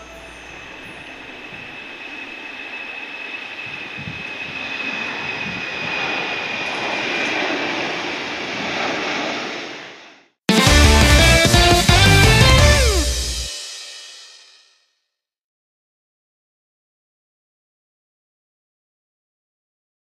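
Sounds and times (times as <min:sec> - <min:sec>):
jet engines at takeoff: 0:00.0 - 0:10.4.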